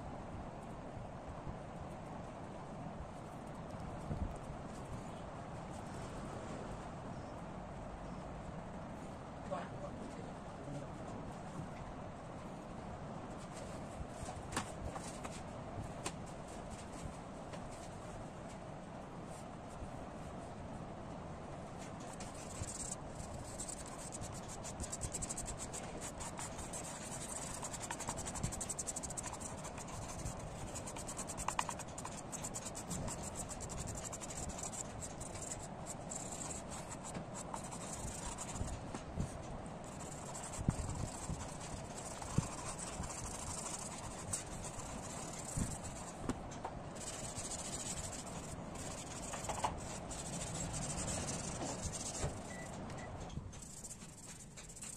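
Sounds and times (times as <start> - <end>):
pastel crayon scratching on paper: 22.0 - 38.8, 39.8 - 46.3, 47.0 - 52.7, 53.6 - 54.9
fingertip rubbing paper: 22.0 - 46.2, 47.0 - 52.7, 53.6 - 54.9.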